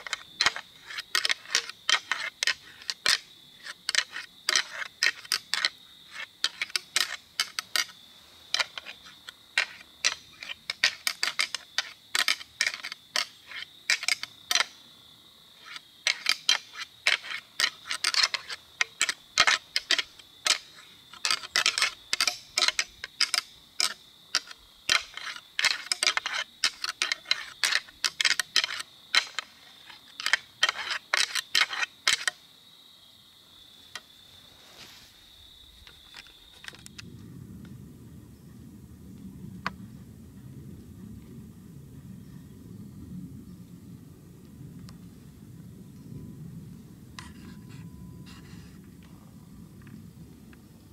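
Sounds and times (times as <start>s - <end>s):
antlers rattling together: 3.9s - 14.7s, 15.6s - 32.4s.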